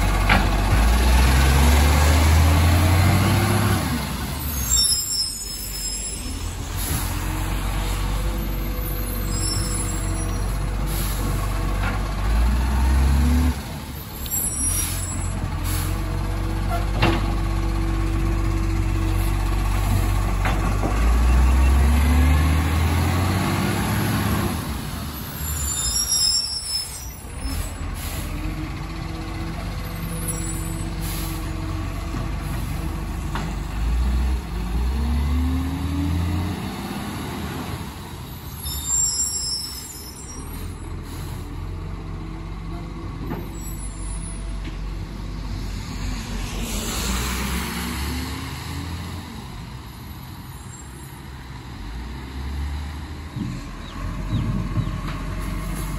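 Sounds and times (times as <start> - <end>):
diesel engine revving: 0.0 - 4.8, 5.9 - 25.7, 27.2 - 39.0, 40.5 - 49.9
air brake hisses: 38.8 - 41.7.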